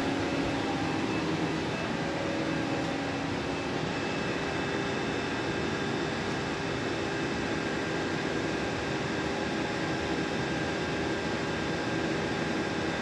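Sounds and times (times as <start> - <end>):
machinery humming: 0.0 - 6.3.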